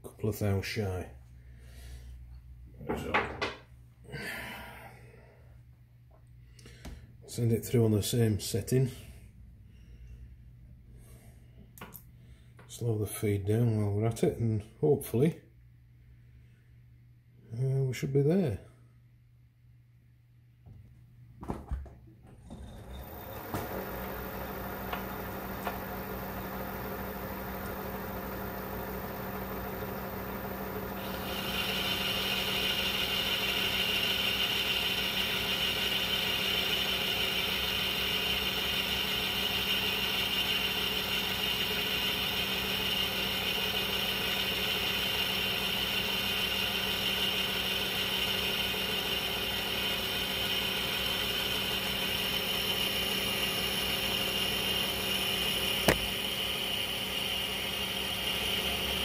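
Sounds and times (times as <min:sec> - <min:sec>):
metal lathe humming: 0:22.5 - 0:59.0.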